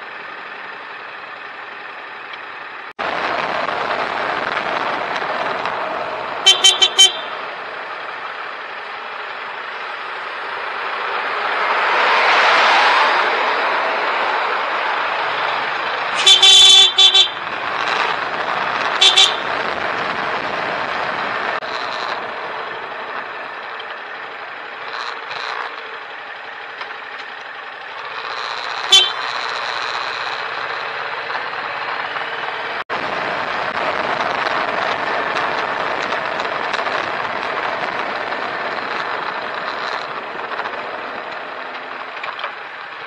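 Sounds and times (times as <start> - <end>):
engine and tyre noise: 0.0 - 43.0
car horn honking: 6.4 - 7.4, 16.2 - 17.4, 19.0 - 19.5, 28.8 - 29.4.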